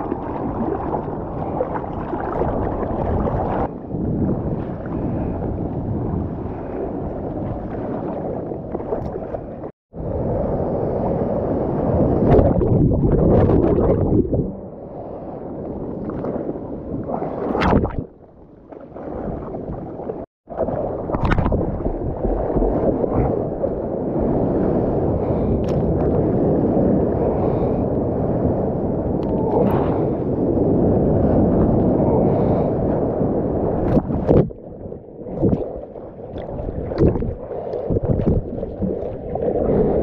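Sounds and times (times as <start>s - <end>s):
ocean water rushing and sloshing: 0.0s - 40.0s.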